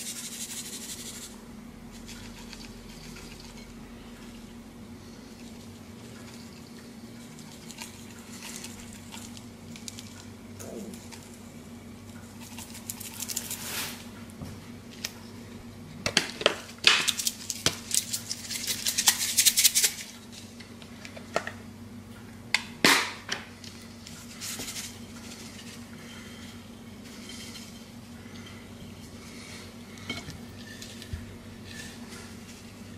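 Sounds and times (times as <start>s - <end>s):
seasoning shaker rattling: 0.0s - 3.7s, 12.4s - 13.9s, 16.9s - 20.4s
steady low hum: 0.0s - 32.9s.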